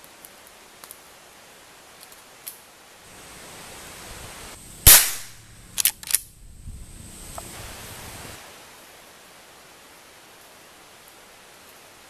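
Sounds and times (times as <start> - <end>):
rifle shot: 4.8 - 6.3
rifle lever metallic clicks: 5.8 - 6.3.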